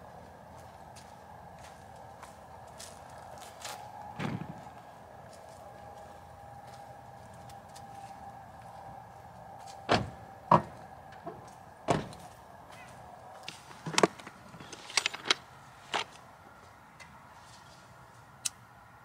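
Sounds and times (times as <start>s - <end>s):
knocks and thuds of firewood: 4.2s - 4.7s.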